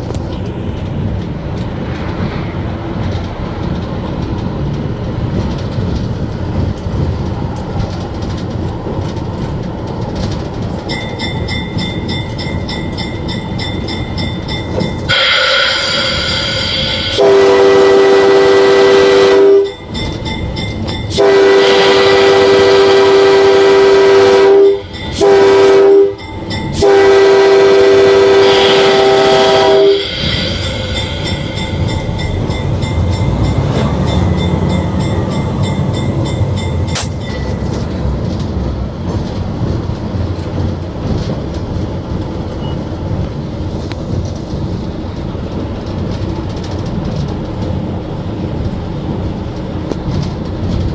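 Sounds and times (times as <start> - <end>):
locomotive rumble: 0.0 - 50.9
wheels clickety-clack on rails: 0.0 - 50.9
locomotive horn blasts: 15.1 - 19.9, 21.1 - 37.2.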